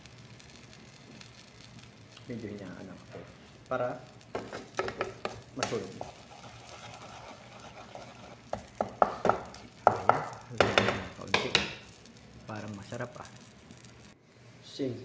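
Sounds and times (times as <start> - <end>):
omelette sizzling in a pan: 0.0 - 14.2
spatula scraping and tapping pan: 4.3 - 12.0.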